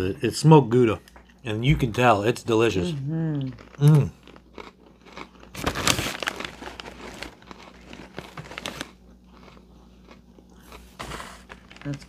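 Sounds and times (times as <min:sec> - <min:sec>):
snack bag crinkling: 0:03.5 - 0:12.0.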